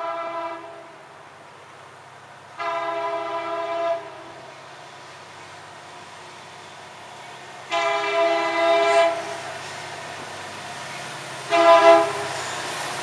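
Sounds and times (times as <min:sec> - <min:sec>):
locomotive air horn blasts: 0:00.0 - 0:00.9, 0:02.6 - 0:04.4, 0:07.7 - 0:09.4, 0:11.5 - 0:12.4
train low rumble: 0:00.0 - 0:13.0.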